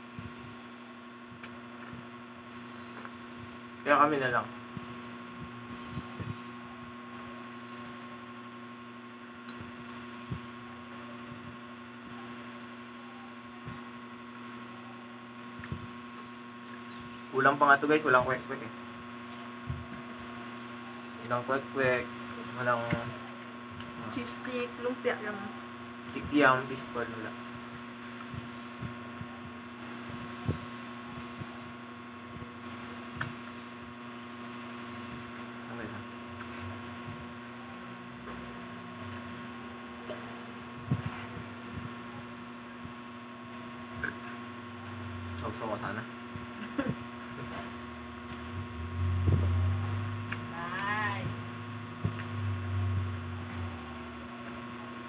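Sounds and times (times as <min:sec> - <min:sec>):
electrical hum: 0:00.0 - 0:55.0
person chewing food: 0:48.2 - 0:48.5, 0:49.8 - 0:50.5, 0:52.1 - 0:52.4.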